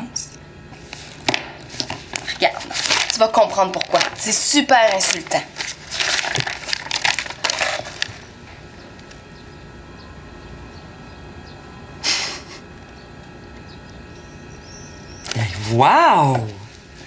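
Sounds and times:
faint hum: 0.0 - 17.0
paper crinkling: 0.8 - 8.4, 15.2 - 17.0.

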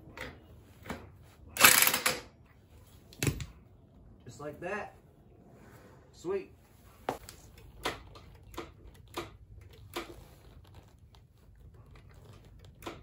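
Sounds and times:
tools and parts clicking: 1.6 - 2.4.

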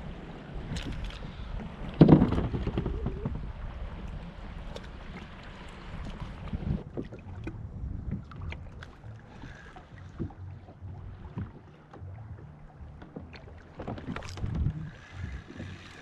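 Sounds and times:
waves slapping against kayak hull: 0.7 - 16.0
light knocks on hull: 1.9 - 3.4.

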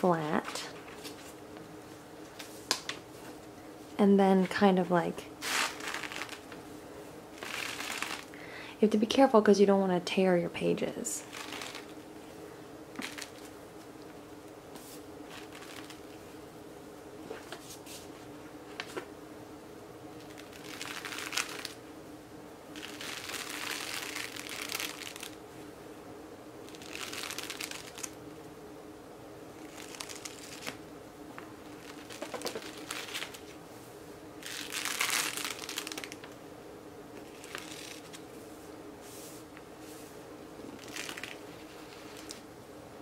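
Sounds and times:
book pages rustling: 0.3 - 1.4, 5.4 - 6.6, 7.4 - 8.3, 11.2 - 11.9, 13.0 - 13.5, 14.7 - 16.2, 17.2 - 19.1, 29.6 - 30.8, 31.7 - 33.6, 37.2 - 42.4.

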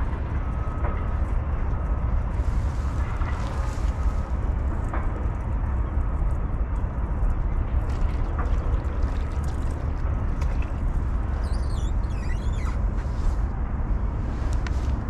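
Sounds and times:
high wavering chirping: 11.4 - 12.8.

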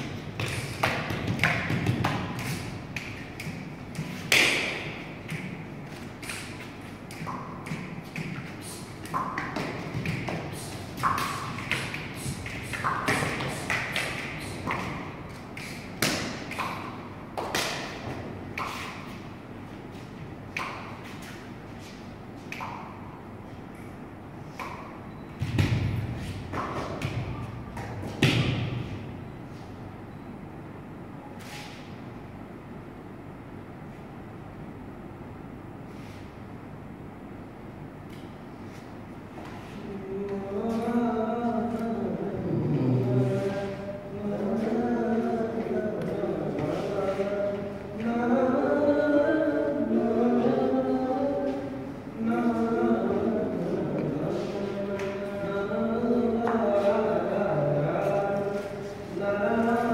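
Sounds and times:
bare feet stamping on paper: 0.4 - 16.8.

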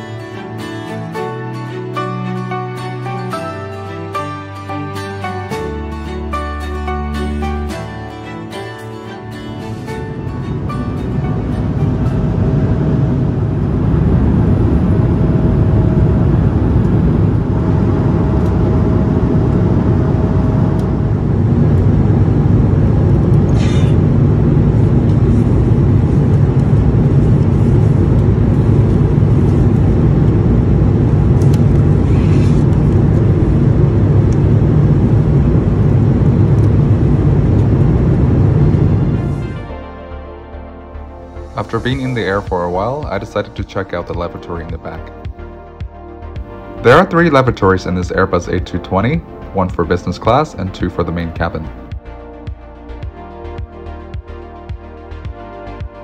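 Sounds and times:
airliner cabin engine rush: 7.8 - 39.7.

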